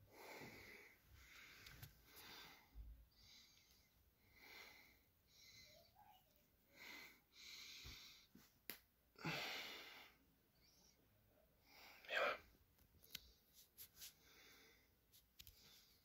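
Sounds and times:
soft breathy puffs: 13.1s - 16.0s.

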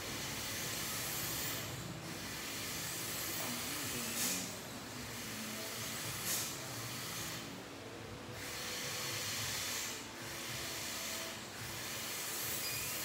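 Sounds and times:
dental equipment hissing: 0.2s - 4.6s, 8.5s - 13.0s.

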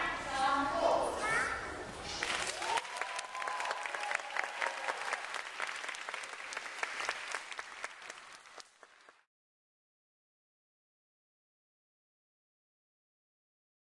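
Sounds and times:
audience applauding: 2.2s - 9.3s.

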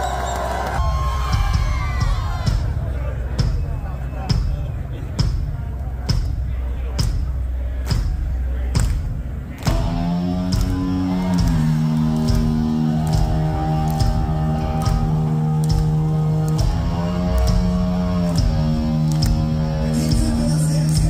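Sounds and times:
electric guitar sustained notes: 9.6s - 21.0s.

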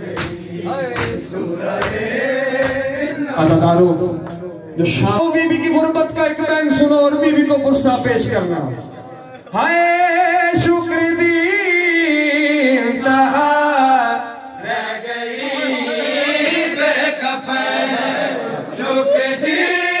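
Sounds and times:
man chanting a lament: 2.3s - 20.0s.

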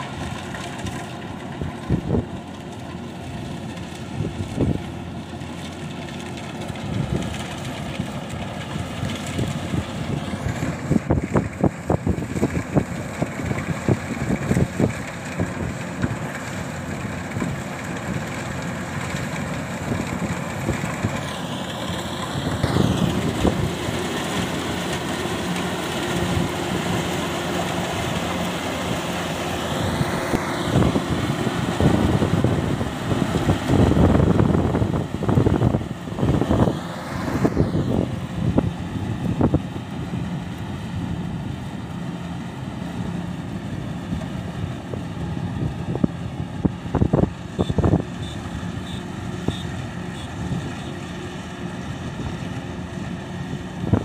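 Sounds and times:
combine harvester running: 0.0s - 54.0s.

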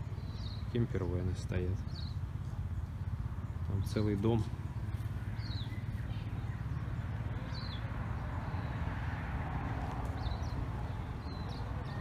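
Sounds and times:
high bird chirps: 0.0s - 1.2s
low outdoor rumble: 0.0s - 12.0s.

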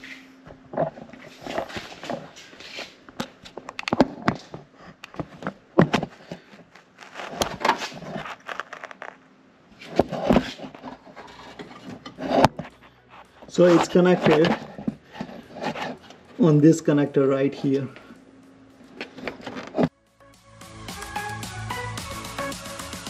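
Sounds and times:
wiring harness rustling: 0.0s - 16.4s
plastic parts clicking and knocking: 3.1s - 9.2s.

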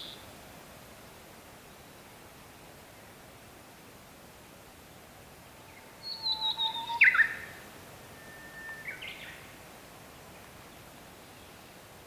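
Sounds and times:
bird singing whistled song: 6.0s - 7.6s, 8.2s - 9.4s.

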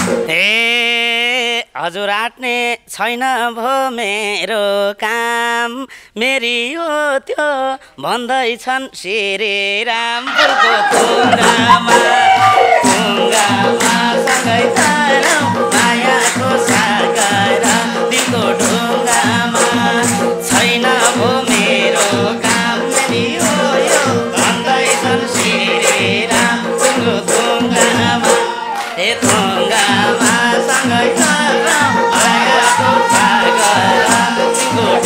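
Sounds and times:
hand drum beat: 0.0s - 0.3s, 10.8s - 28.6s, 29.2s - 35.0s.

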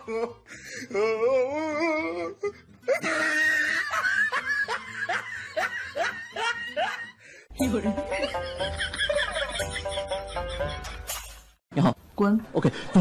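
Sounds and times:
person laughing: 2.9s - 11.1s.

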